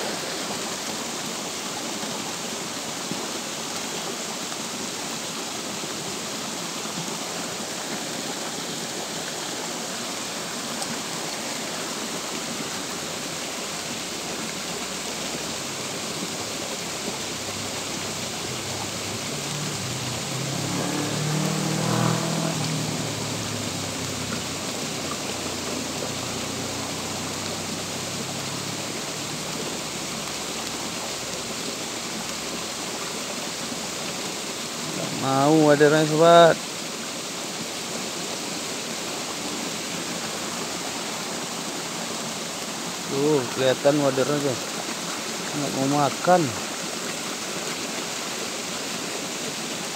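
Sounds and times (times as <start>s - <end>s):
rain falling on creek and leaves: 0.0s - 49.9s
engine passing: 16.2s - 32.9s.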